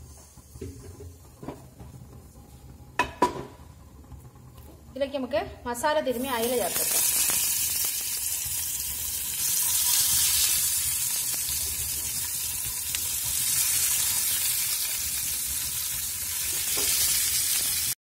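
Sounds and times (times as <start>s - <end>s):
fish frying in hot oil: 6.1s - 18.0s.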